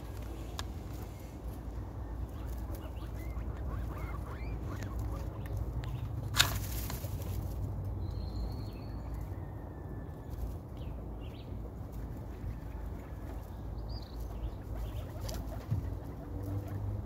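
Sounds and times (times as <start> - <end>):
guinea pigs rustling in hay: 0.0 - 7.7, 10.3 - 10.7, 11.8 - 16.8
guinea pigs nibbling pellets: 2.2 - 6.1, 11.8 - 16.8.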